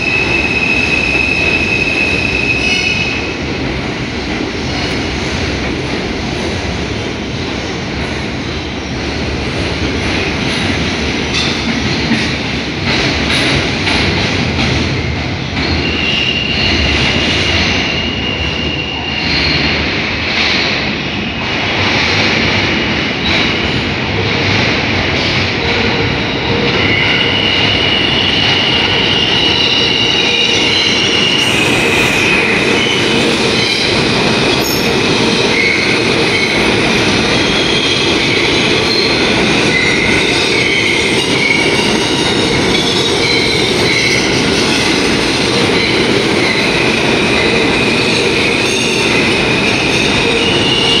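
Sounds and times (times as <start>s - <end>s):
subway train rumbling: 0.0s - 51.0s
steel wheels squealing: 26.3s - 33.9s.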